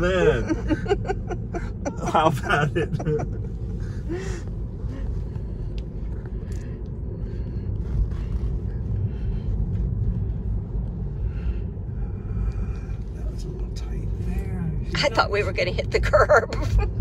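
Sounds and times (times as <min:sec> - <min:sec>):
road and tyre rumble in car: 0:00.0 - 0:17.0.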